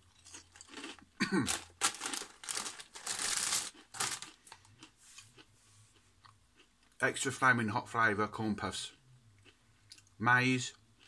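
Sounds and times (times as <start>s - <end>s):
crisp packet crinkling: 0.2s - 4.7s.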